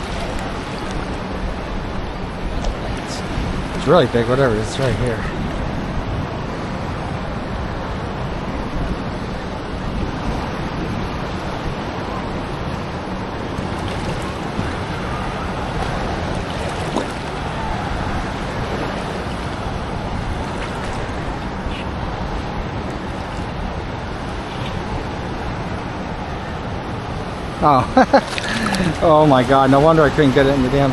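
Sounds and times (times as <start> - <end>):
ocean surf washing: 0.0 - 30.9
wind buffeting microphone: 0.0 - 30.9.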